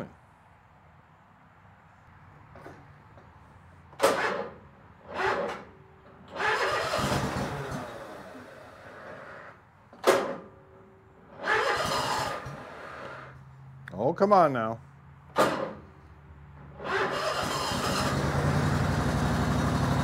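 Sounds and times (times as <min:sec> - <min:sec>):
engine starter cranking: 0:04.0 - 0:10.4, 0:11.3 - 0:13.3, 0:16.6 - 0:20.0.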